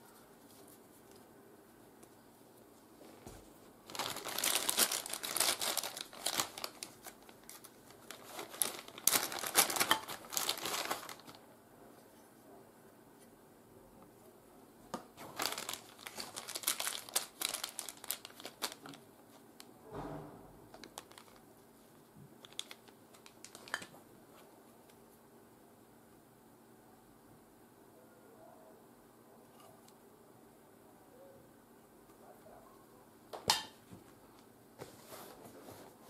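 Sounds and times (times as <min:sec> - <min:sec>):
plastic bags crinkling: 0:03.8 - 0:11.4, 0:15.2 - 0:19.0, 0:20.8 - 0:21.5, 0:22.4 - 0:23.9.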